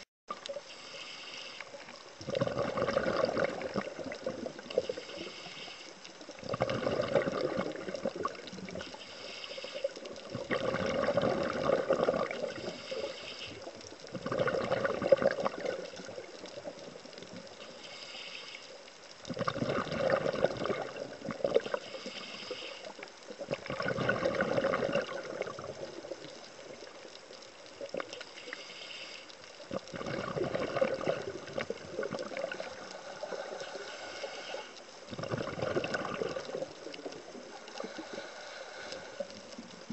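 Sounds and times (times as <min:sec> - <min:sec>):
quiet hiss: 0:00.3 - 0:39.9
underwater breath bubbling: 0:00.3 - 0:39.9.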